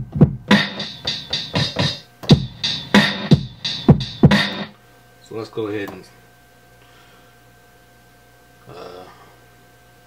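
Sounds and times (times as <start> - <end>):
hip-hop drum beat: 0.0 - 4.7.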